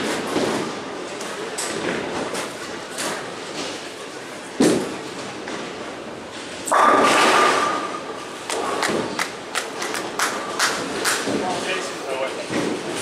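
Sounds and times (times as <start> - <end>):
bowling pins crashing: 6.7 - 9.2.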